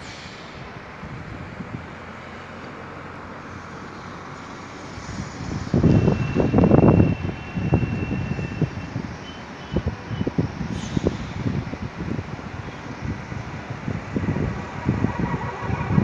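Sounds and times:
wind buffeting microphone: 5.0s - 9.2s, 9.8s - 16.0s.

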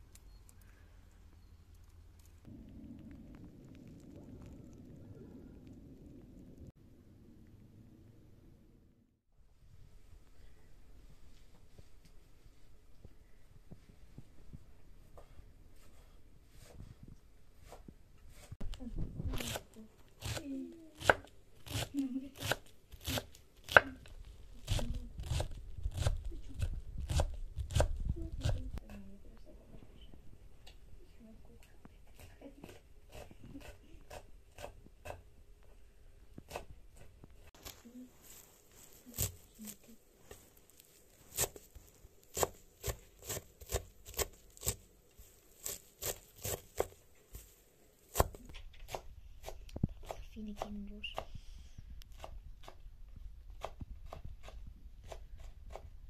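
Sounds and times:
knife chopping herbs on wood: 24.6s - 28.6s, 36.4s - 37.1s, 42.3s - 44.8s, 45.6s - 47.5s, 48.1s - 51.3s, 53.5s - 55.9s.

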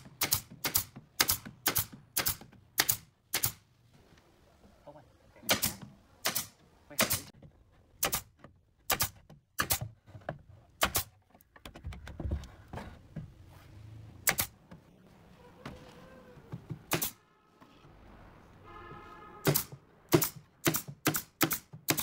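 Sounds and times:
nail gun firing into wood: 0.0s - 3.6s, 5.5s - 7.3s, 8.0s - 8.3s, 8.9s - 9.9s, 10.8s - 11.1s, 14.2s - 14.6s, 16.9s - 17.2s, 19.5s - 22.0s
knocks of wood handling: 7.4s - 13.4s.

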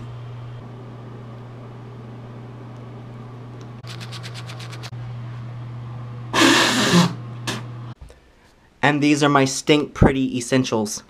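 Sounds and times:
exhaust fan humming: 0.0s - 8.0s
toothbrush scrubbing teeth: 3.8s - 4.9s.

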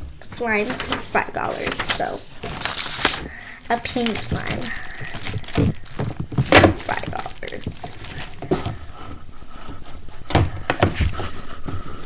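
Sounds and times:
plastic packaging rustling: 0.2s - 9.3s.

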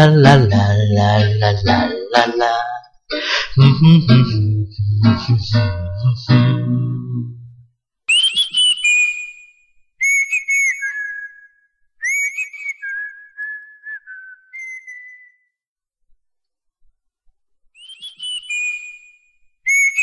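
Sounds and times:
person whistling a tune: 8.1s - 15.5s, 17.8s - 20.0s.

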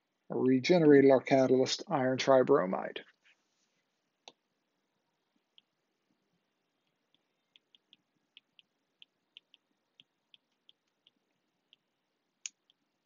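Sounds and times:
stylus tapping on tablet screen: 6.8s - 12.8s.

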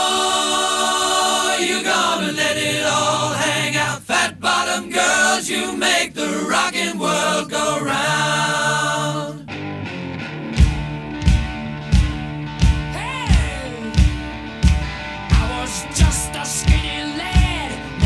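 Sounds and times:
voices singing in chorus: 0.0s - 9.5s, 15.4s - 18.0s.

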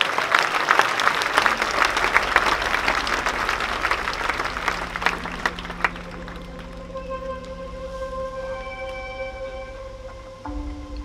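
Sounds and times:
crowd applauding: 0.0s - 7.6s.

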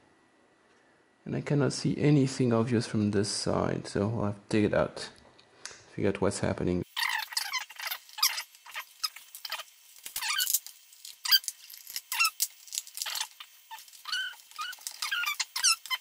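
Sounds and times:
high short squeaks: 7.0s - 10.6s, 11.2s - 12.4s, 13.0s - 16.0s.

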